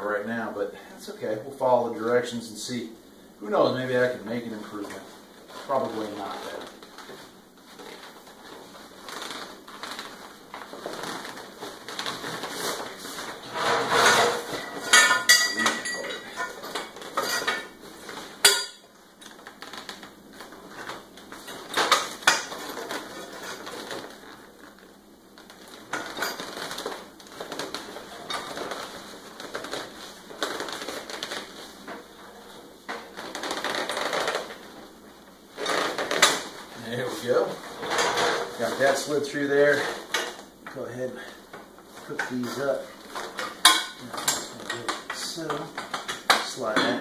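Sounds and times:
fabric bag rustling: 5.0 - 14.9, 19.2 - 40.1
metal tubes clinking together: 14.6 - 17.7.

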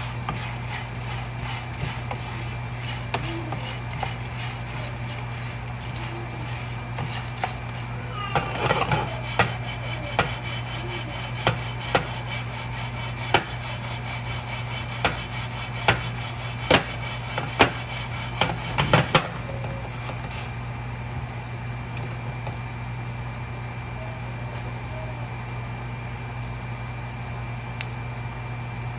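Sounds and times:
wooden spoon scraping a metal pan: 0.0 - 20.6
steady low hum: 0.0 - 28.9.

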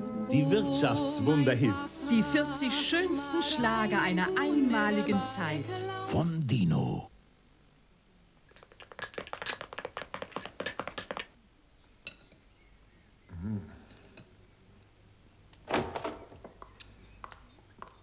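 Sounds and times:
small objects clicking: 8.5 - 11.3.

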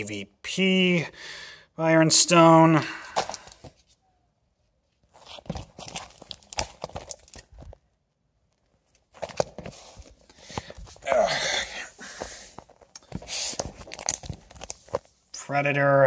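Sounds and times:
paper rustling and crinkling: 5.1 - 7.9, 8.5 - 11.0, 12.5 - 15.2.

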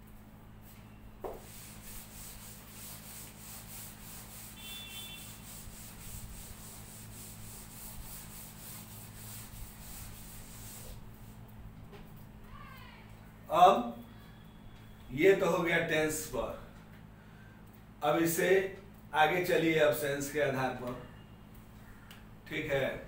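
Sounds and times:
eraser scrubbing a chalkboard: 1.3 - 11.4.

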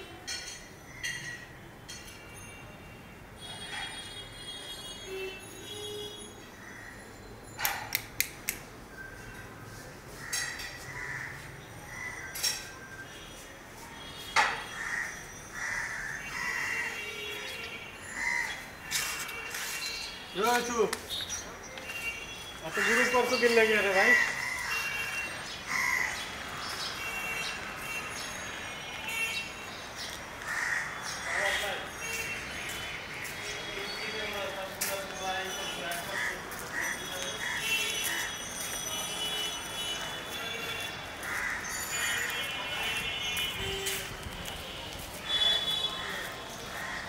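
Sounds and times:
city background noise: 0.0 - 47.0
crow cawing: 10.2 - 12.3, 14.7 - 17.0, 18.1 - 19.2, 22.7 - 23.4, 24.0 - 25.1, 25.7 - 26.3, 30.4 - 31.6, 36.1 - 38.3, 41.2 - 42.4, 45.9 - 47.0.

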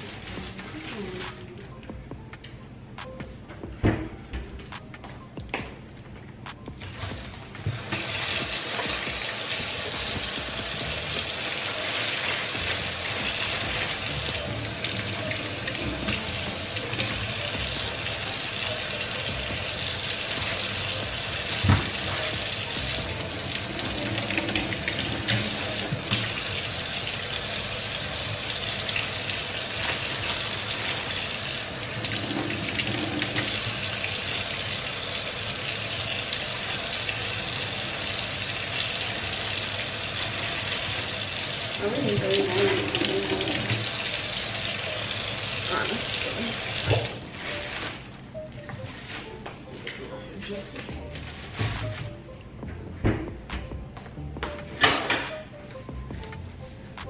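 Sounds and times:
tap water running into sink: 7.7 - 47.2.

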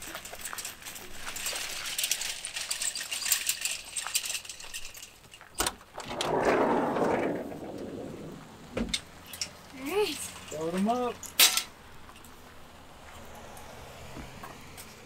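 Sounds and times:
wagon wheels rattling over gravel: 0.0 - 12.7
sliding door rumbling open: 5.9 - 9.2.

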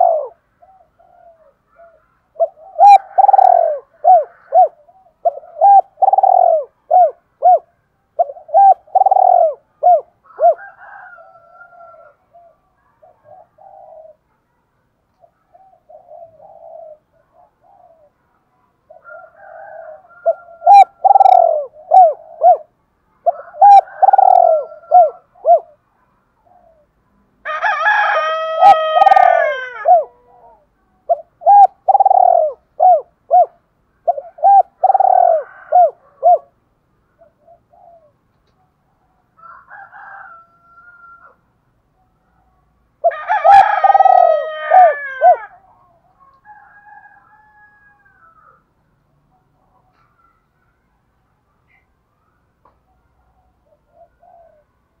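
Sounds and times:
dove cooing: 0.0 - 14.4, 15.2 - 18.2, 18.8 - 25.8, 26.4 - 27.0, 28.0 - 38.2, 43.0 - 48.6, 53.3 - 54.8.

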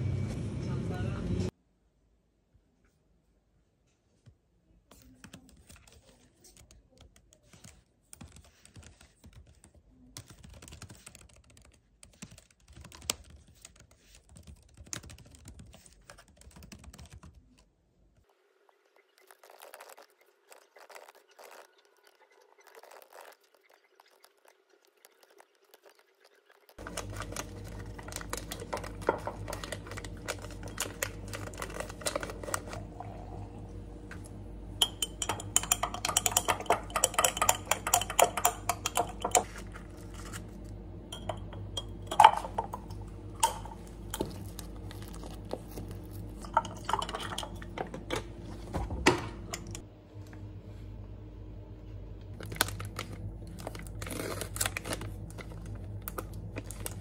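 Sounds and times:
plastic film crinkling: 26.4 - 32.9, 52.4 - 57.0
steady low hum: 26.8 - 57.0
glass jar and utensils clinking: 34.8 - 40.2, 41.1 - 44.5, 46.4 - 48.2.

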